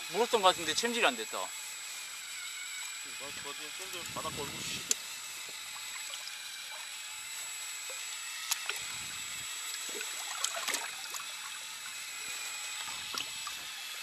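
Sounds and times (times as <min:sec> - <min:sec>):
water lapping around boat: 0:09.8 - 0:11.6.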